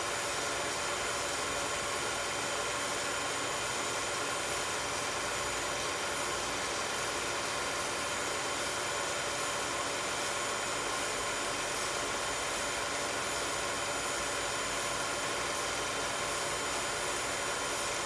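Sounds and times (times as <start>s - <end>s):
film projector whirring: 0.0s - 18.0s.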